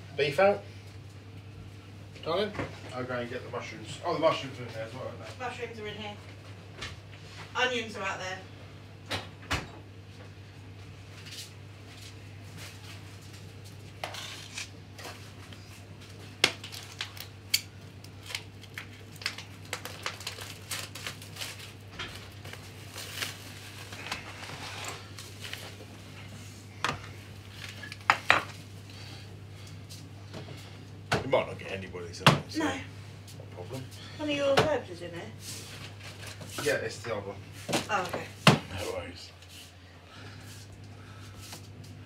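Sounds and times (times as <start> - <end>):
steady low hum: 0.0 - 42.0
items knocking on worktop: 32.2 - 32.5.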